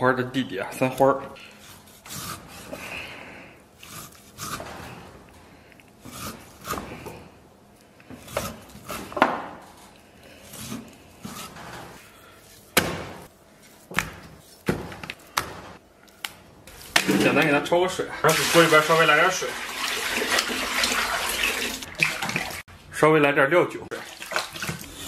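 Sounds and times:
cleaver cutting meat: 1.0s - 3.0s, 3.8s - 5.2s, 6.0s - 7.3s, 8.0s - 9.2s, 10.3s - 11.8s.

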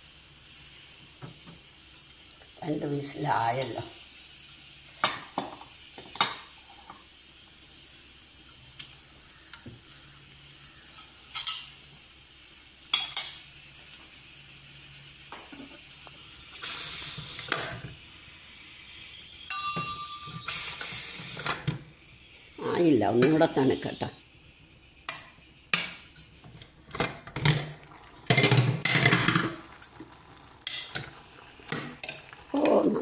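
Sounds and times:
steady hiss: 0.0s - 33.0s
ceramic dishes clinking: 19.5s - 20.4s.

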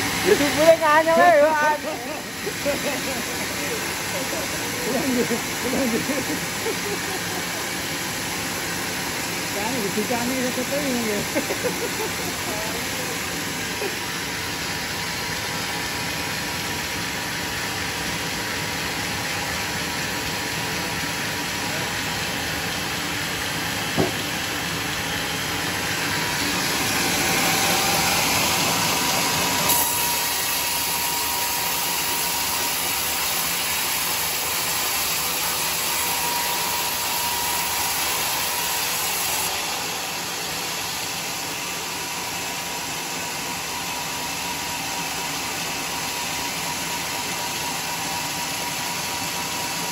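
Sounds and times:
band saw cutting wood: 0.0s - 14.5s, 23.8s - 24.4s, 25.7s - 49.9s
sharp knock: 24.0s - 24.3s.

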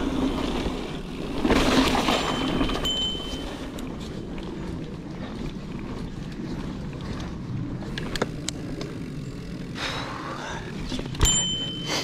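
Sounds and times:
bike tyres rumbling on dirt: 0.0s - 11.8s
bike rattles and clicks: 0.0s - 12.0s
bicycle bell ringing: 2.1s - 3.8s, 11.2s - 12.0s.

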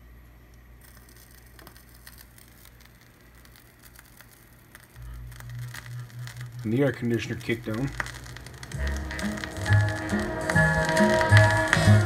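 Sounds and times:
low hum: 0.8s - 12.0s
vinyl surface crackle: 0.8s - 12.0s.

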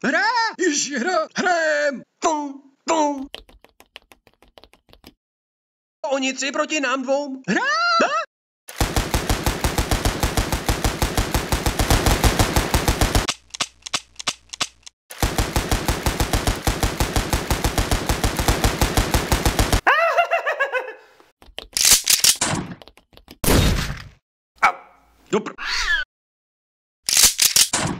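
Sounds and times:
automatic gunfire: 8.7s - 13.3s, 15.1s - 19.8s.

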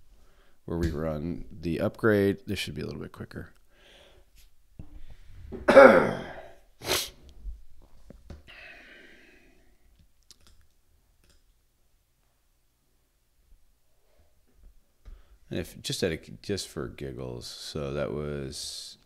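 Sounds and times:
man coughing: 5.6s - 6.6s.

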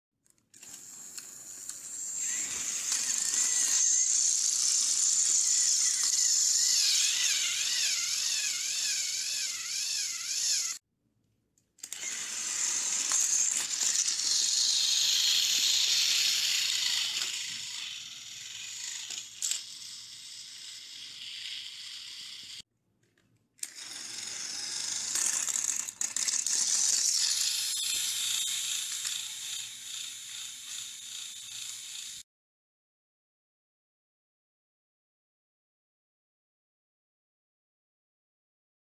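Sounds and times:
toy train motor whine: 0.5s - 10.8s, 11.8s - 22.6s, 23.6s - 32.2s.

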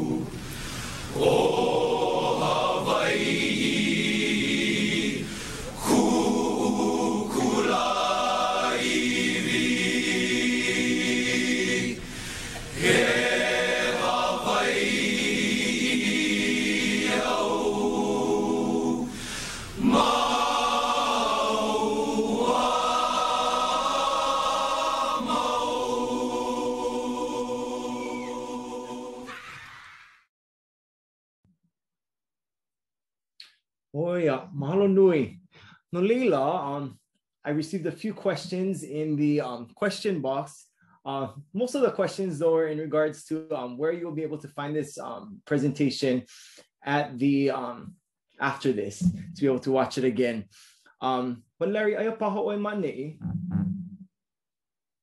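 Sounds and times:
choir singing held chords: 0.0s - 29.3s
singers breathing: 0.3s - 1.2s, 5.2s - 5.8s, 12.0s - 12.8s, 19.1s - 19.8s, 46.3s - 46.8s, 50.5s - 51.0s.

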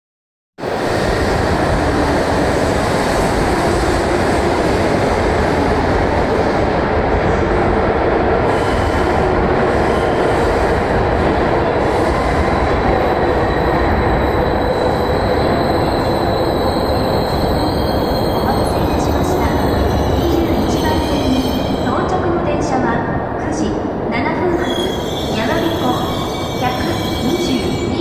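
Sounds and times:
faint high squeal: 13.6s - 18.8s.

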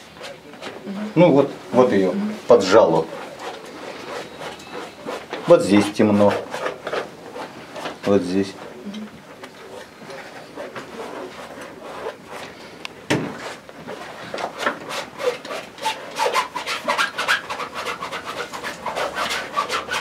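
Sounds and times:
paintbrush scrubbing on canvas: 1.7s - 12.8s, 13.4s - 20.0s
knock: 13.1s - 13.4s.

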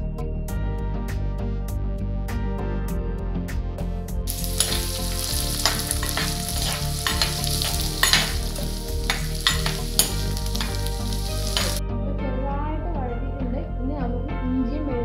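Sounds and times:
metal spoon scraping pot: 4.3s - 11.8s
onions sizzling in oil: 4.3s - 11.8s.

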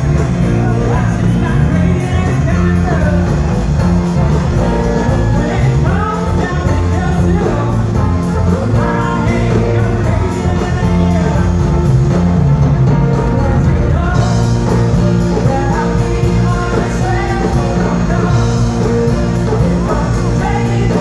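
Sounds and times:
bass guitar: 0.0s - 21.0s
drums: 0.0s - 21.0s
electric guitars: 0.0s - 21.0s.

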